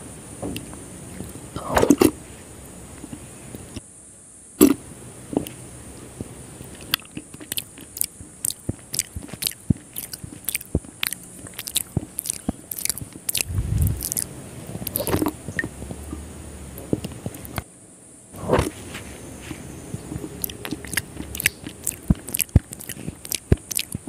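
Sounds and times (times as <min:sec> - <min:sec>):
chewing with wet mouth clicks: 0:06.6 - 0:16.2, 0:16.8 - 0:17.6, 0:20.0 - 0:24.0.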